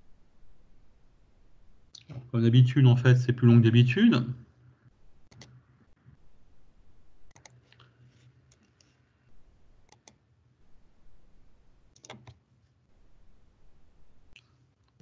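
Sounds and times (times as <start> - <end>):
mouse and keyboard clicks: 5.3 - 5.6, 7.3 - 7.9, 12.0 - 12.4.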